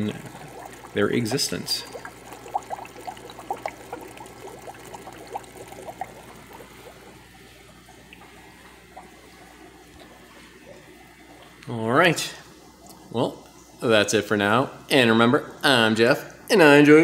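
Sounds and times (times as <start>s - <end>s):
aquarium water bubbling: 0.0s - 14.6s
steady low hum: 0.0s - 17.0s.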